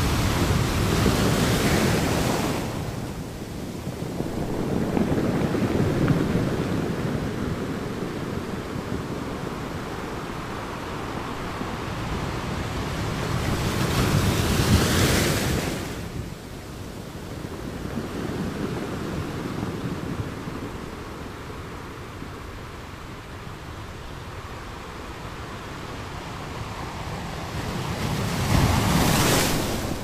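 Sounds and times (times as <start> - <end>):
sea waves breaking on rocks: 0.0 - 7.6, 27.0 - 30.0
large wave crashing: 0.0 - 16.4, 26.4 - 30.0.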